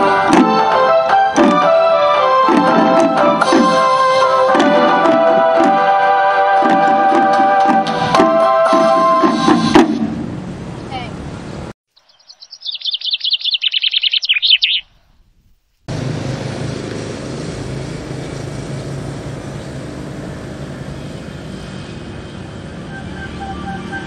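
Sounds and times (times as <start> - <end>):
songbird trilling: 11.9 - 15.2
outdoor rumble with low hum: 15.2 - 24.0.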